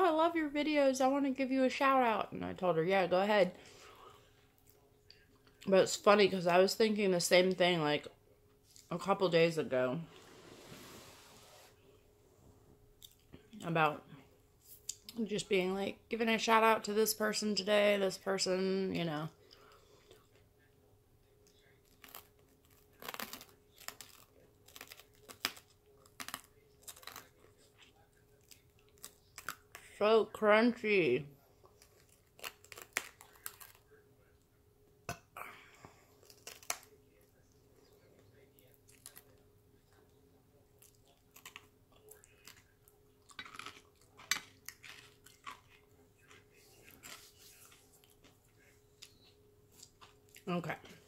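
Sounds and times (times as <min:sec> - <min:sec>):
crunchy food bitten and chewed: 0:21.4 - 0:29.9, 0:31.6 - 0:34.0, 0:36.1 - 0:50.5.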